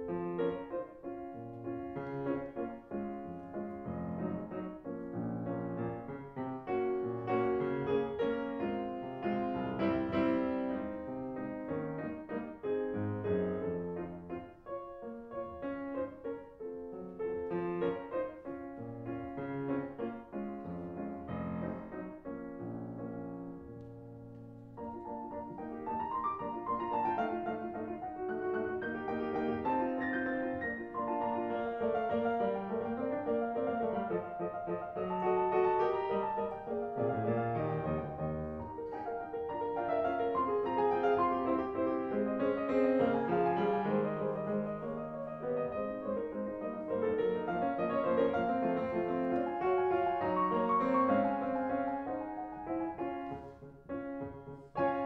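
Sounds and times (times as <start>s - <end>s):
slow piano music: 0.0s - 55.0s.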